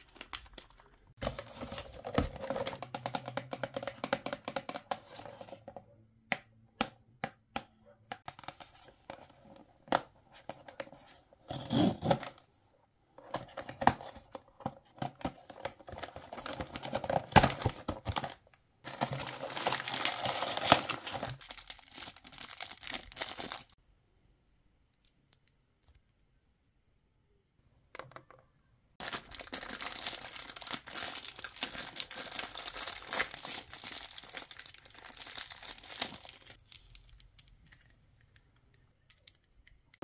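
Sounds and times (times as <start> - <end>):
plastic bag crinkling and tearing: 0.0 - 2.0, 16.1 - 23.8, 29.0 - 37.6.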